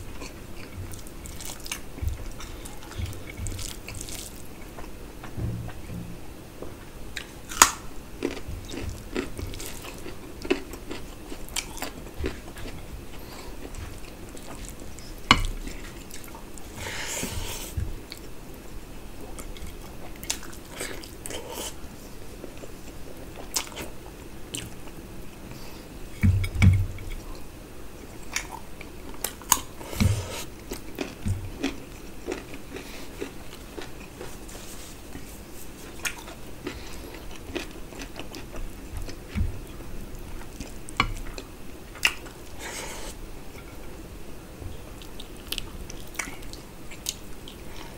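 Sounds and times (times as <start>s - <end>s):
low thuds: 5.2s - 6.9s
wet chewing and biting: 35.9s - 39.5s.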